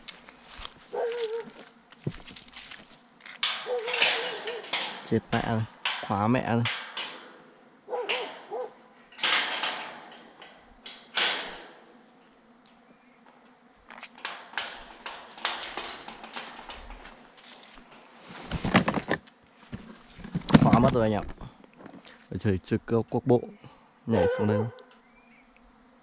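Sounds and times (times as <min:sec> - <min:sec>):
insects droning: 0:00.0 - 0:26.0
loud clattering knocks: 0:03.5 - 0:07.4, 0:09.2 - 0:11.8, 0:14.2 - 0:17.2.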